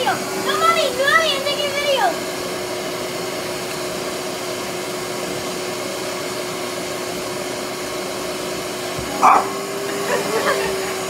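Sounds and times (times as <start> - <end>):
vacuum cleaner running: 0.0 - 11.0.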